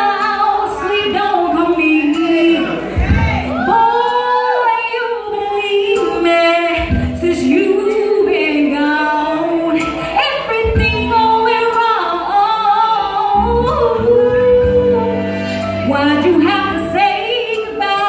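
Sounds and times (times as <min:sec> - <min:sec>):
woman singing soul ballad: 0:00.0 - 0:18.0
low bass notes: 0:01.5 - 0:04.2, 0:13.3 - 0:17.1.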